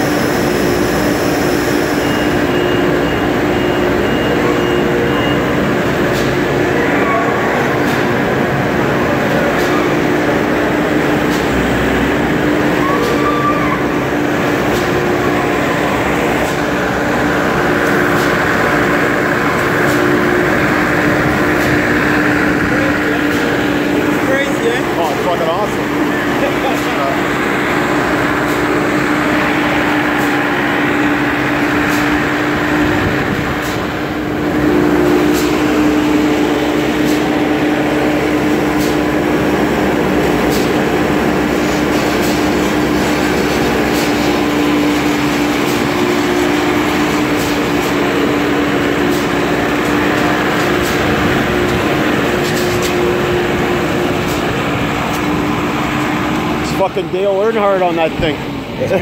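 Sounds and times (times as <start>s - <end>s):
diesel engine running: 13.8s - 59.0s.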